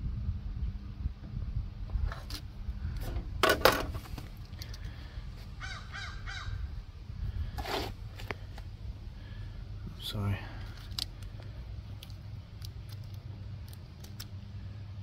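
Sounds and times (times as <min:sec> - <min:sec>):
crow cawing: 0:05.6 - 0:06.6.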